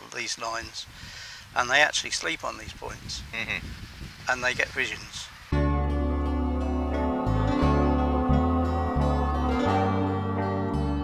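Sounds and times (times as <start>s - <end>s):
plucked strings background music: 5.5s - 11.0s
bass line: 5.6s - 11.0s.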